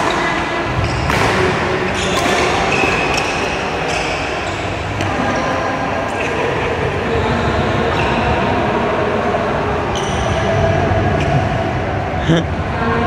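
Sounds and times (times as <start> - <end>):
steady background noise: 0.0 - 13.0
racket hitting shuttlecock: 1.0 - 3.3.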